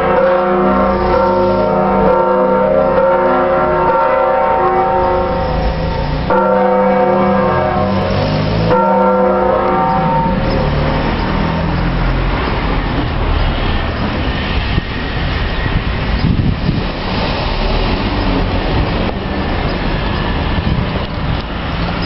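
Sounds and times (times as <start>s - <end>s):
church bells ringing: 0.0s - 14.8s
street traffic noise: 0.0s - 22.0s.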